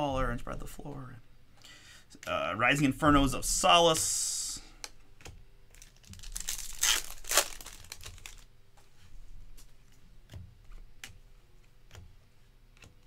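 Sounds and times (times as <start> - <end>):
cards flipped by hand: 4.8 - 8.5
foil wrapper tearing and crinkling: 5.7 - 8.5.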